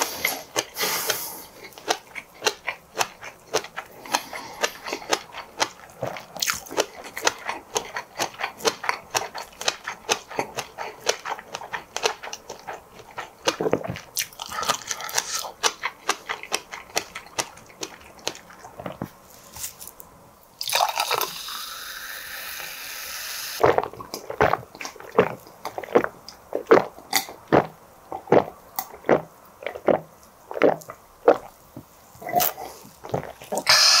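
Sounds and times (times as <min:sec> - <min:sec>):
steady hiss: 0:00.0 - 0:01.6, 0:19.1 - 0:23.7, 0:31.5 - 0:34.0
wet chewing clicks: 0:00.0 - 0:19.2, 0:23.6 - 0:34.0.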